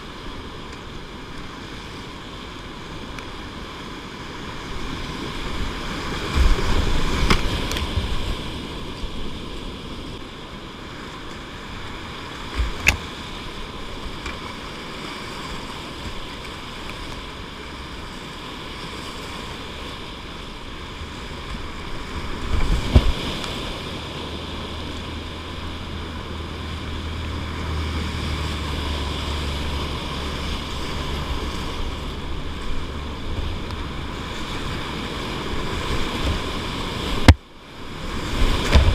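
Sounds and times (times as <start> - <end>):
whitewater rapids rushing: 0.0 - 38.9
low rumble: 20.7 - 36.1.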